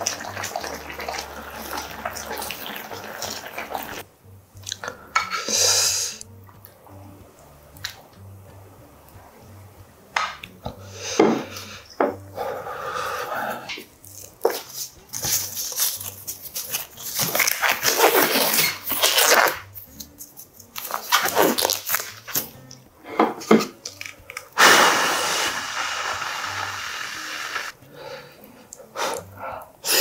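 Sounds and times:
disposable gloves rustling: 0:14.2 - 0:22.5
rushing hiss: 0:24.6 - 0:27.7.

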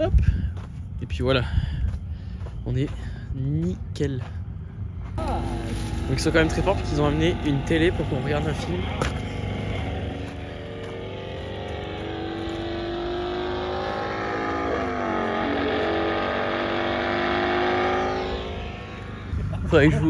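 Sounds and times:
motorcycle engines at high revs: 0:05.2 - 0:20.0.

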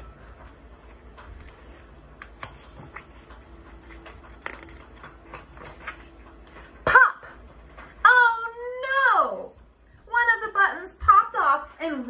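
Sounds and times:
paper rustling: 0:00.0 - 0:06.8
low room hum: 0:00.0 - 0:12.0.

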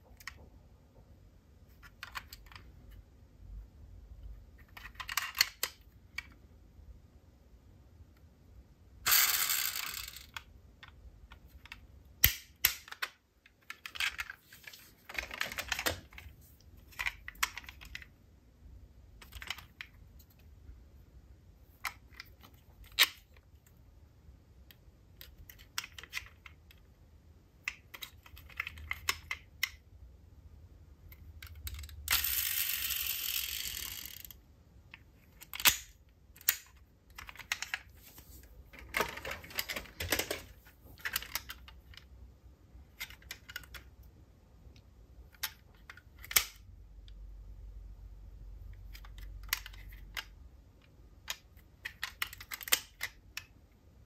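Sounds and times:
metal toy cars clicking: 0:09.1 - 0:14.4, 0:31.1 - 0:37.9, 0:48.7 - 0:50.4, 0:51.2 - 0:53.5.

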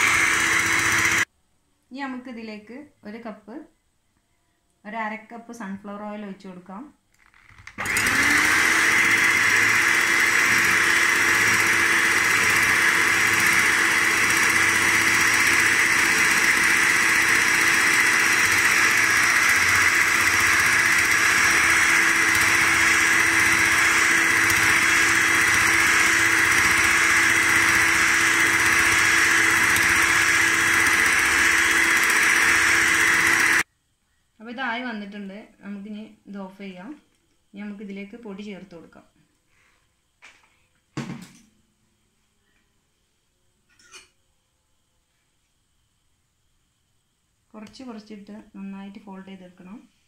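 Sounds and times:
electric hand mixer whine: 0:00.0 - 0:01.3, 0:07.8 - 0:33.7.

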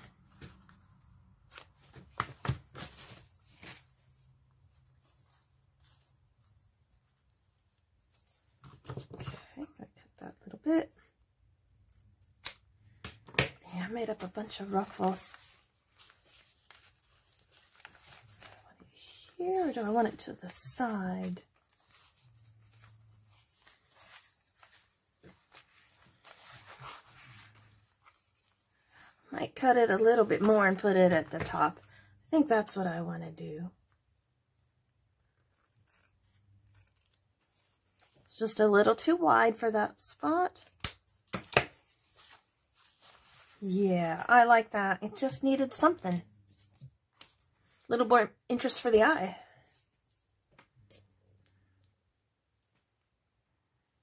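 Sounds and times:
fabric handling: 0:00.0 - 0:09.6, 0:13.8 - 0:31.6, 0:41.7 - 0:44.3.

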